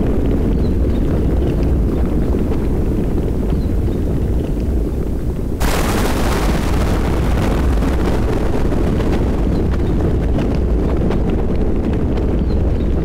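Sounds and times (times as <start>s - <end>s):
deep rumble: 0.0s - 13.0s
rain falling: 5.6s - 12.0s
thunderclap: 5.6s - 13.0s.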